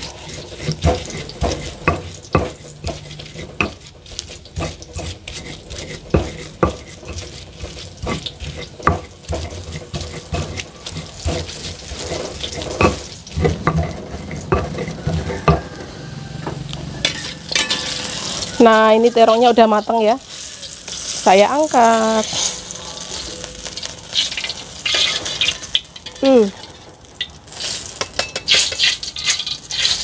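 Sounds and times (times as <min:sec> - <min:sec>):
eggplant frying in oil: 0:00.0 - 0:30.0
stone pestle knocking in mortar: 0:00.6 - 0:03.8.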